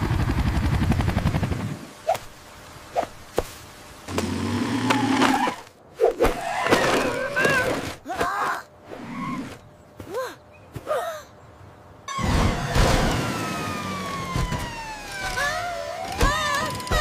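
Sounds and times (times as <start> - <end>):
cartoon helicopter rotor chopping: 12.1 - 17.0
child crying: 15.2 - 17.0.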